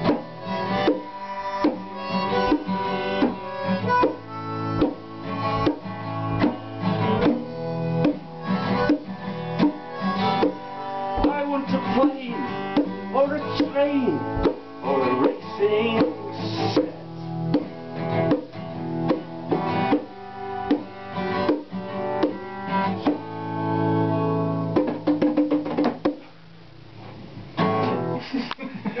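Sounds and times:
acoustic guitar strumming: 0.0 - 28.3.

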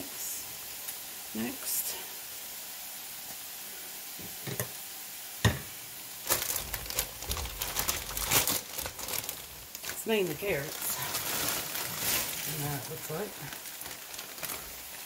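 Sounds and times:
food sizzling in skillet: 0.0 - 15.0
plastic bag crackling: 6.2 - 15.0.

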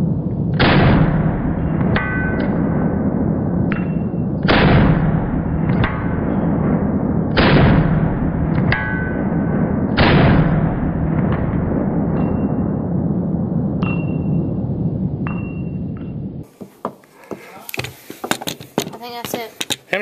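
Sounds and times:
pistol shots: 4.4 - 6.2, 7.3 - 8.8, 9.9 - 11.3.

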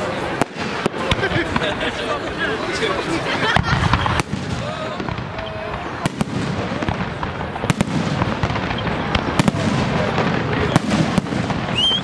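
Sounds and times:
rising firework whistle: 8.6 - 12.0.

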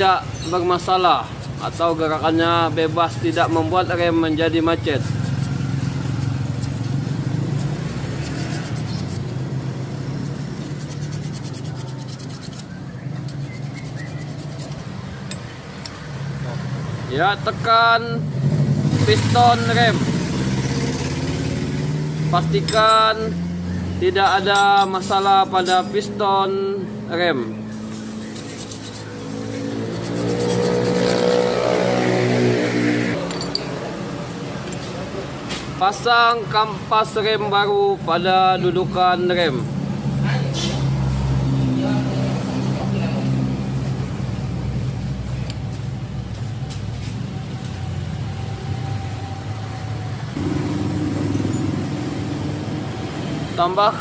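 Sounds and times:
sandpaper scraping metal: 0.5 - 9.4, 10.0 - 15.0, 27.7 - 31.9
vehicle engine running: 1.6 - 12.7, 43.8 - 53.2.

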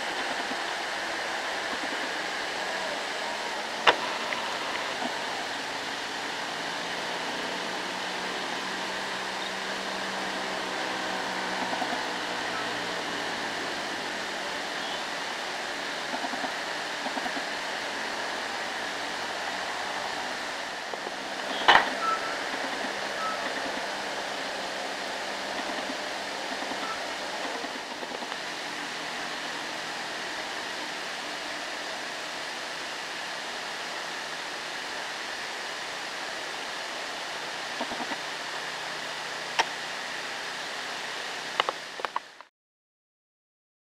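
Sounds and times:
rushing background noise: 0.0 - 42.4.

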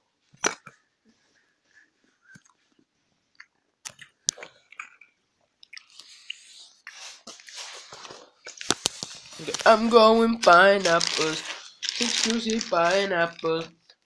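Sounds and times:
chewing mouth clicks and smacks: 2.3 - 7.0
rustling noise: 6.4 - 13.8.

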